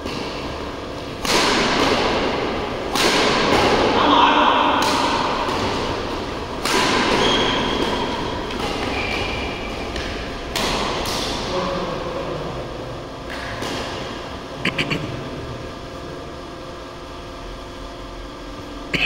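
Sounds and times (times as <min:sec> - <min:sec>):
racket striking shuttlecock: 0:01.2 - 0:04.0, 0:04.6 - 0:11.5
shoes squeaking: 0:07.1 - 0:10.0.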